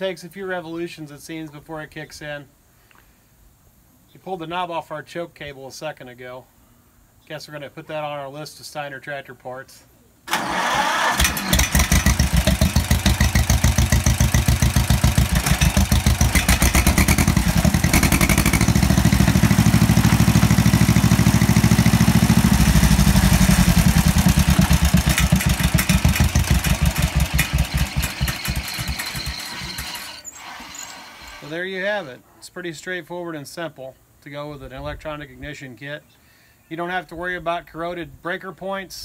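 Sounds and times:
two-cylinder tractor engine running: 10.3 - 30.2.

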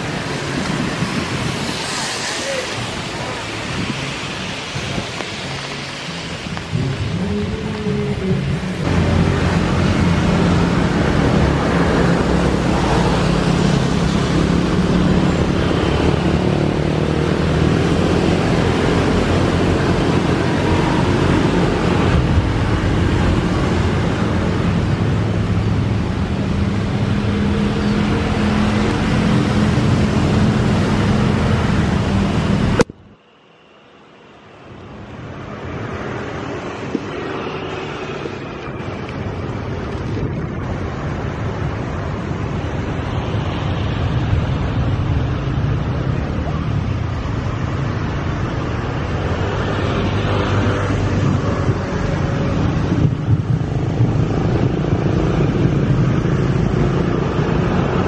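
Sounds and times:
runway spray: 0.0 - 8.5
rain: 0.0 - 58.0
wind: 0.0 - 58.0.

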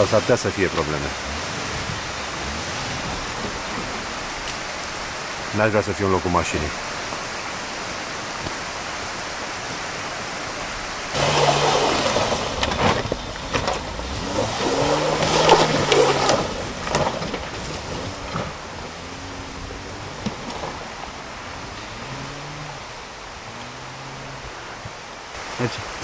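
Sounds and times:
car engine revving: 0.0 - 25.6
steady rushing noise: 0.0 - 26.0
stones crunching under tyres: 11.1 - 21.1.

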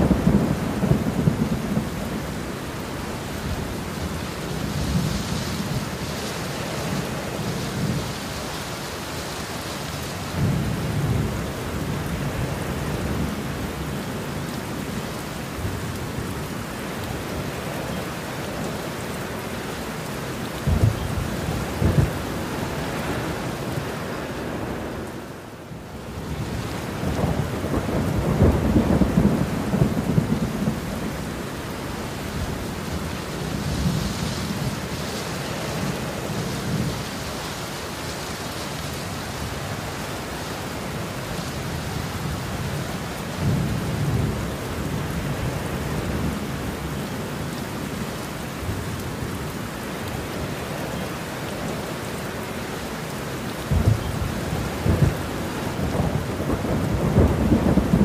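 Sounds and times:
thunder rumbling: 0.0 - 2.5, 20.6 - 23.8, 26.3 - 31.6, 53.7 - 58.0
heavy rain falling: 0.0 - 58.0.

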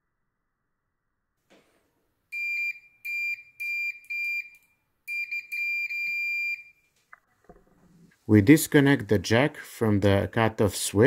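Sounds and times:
multimeter continuity beep: 2.4 - 6.8.

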